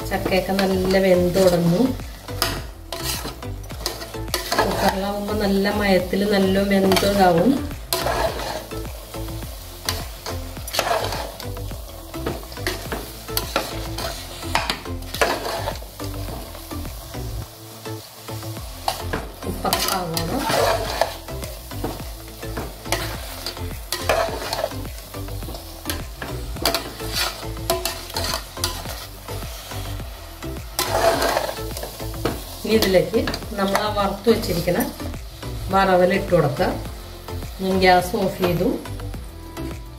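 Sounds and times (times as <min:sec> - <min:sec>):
metal spoon scraping pot: 0:02.4 - 0:05.0, 0:07.9 - 0:08.7, 0:30.8 - 0:31.8.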